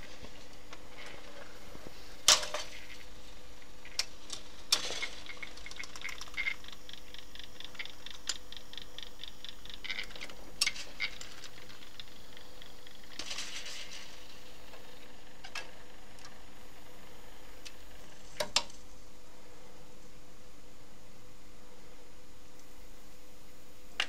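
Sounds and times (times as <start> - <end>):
steady low hum: 0.0 - 24.0
jukebox mechanism clacks: 2.3 - 2.9, 3.9 - 16.4
even mechanical ticks: 3.8 - 13.3.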